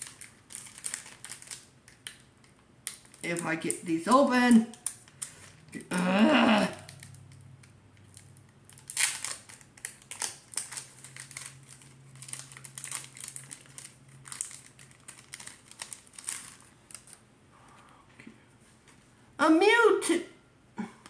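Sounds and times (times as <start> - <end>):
plastic wrapper tearing and crinkling: 0.0 - 5.7, 6.6 - 17.2.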